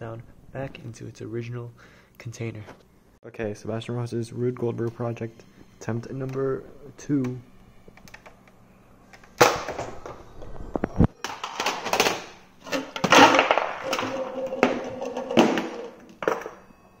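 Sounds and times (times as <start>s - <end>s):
game boxes knocking over: 9.4s - 9.9s, 11.2s - 16.7s
objects rolling and clattering: 9.4s - 16.7s.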